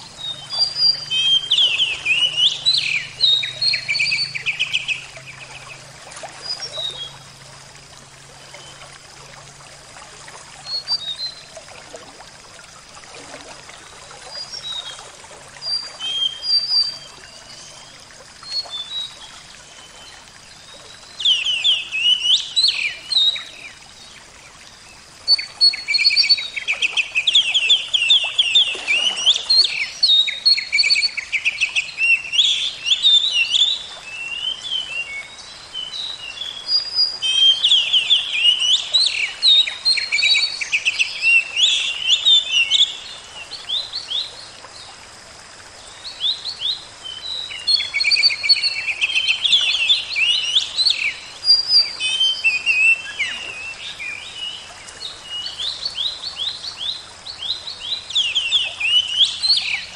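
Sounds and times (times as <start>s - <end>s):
songbirds chirping and trilling: 0.0s - 5.9s
running water: 0.0s - 59.9s.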